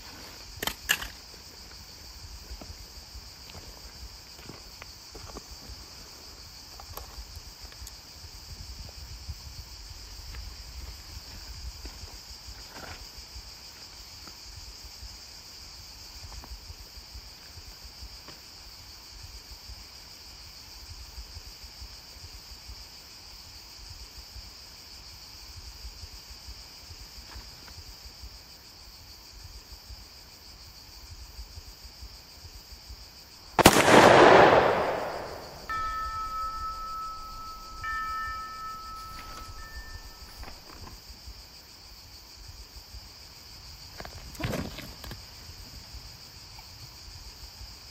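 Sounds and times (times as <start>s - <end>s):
crickets chirping: 0.0s - 47.9s
loud gunshot: 33.6s - 35.9s.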